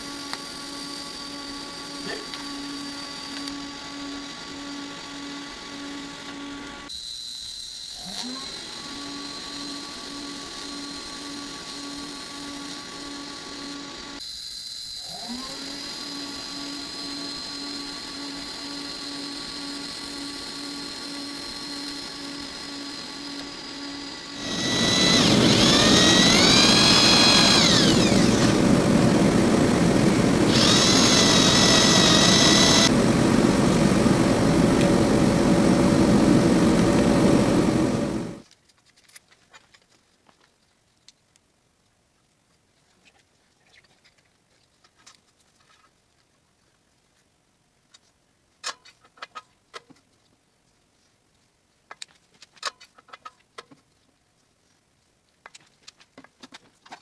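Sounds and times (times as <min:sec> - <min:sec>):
arc welding hum: 0:00.0 - 0:38.4
power drill running: 0:00.0 - 0:38.4.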